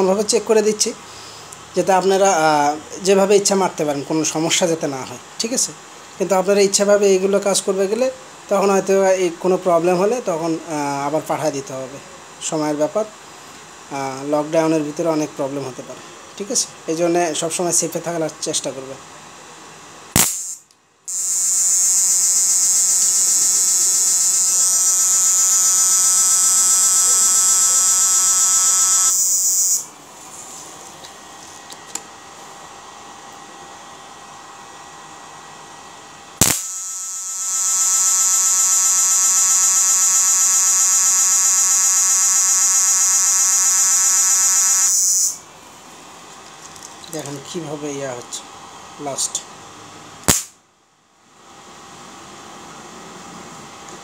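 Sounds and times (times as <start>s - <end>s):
high-pitched electrical arc buzz: 20.1s - 30.0s, 36.3s - 45.5s, 50.2s - 50.6s
sharp click: 20.2s - 20.8s, 36.4s - 36.8s, 50.3s - 50.6s.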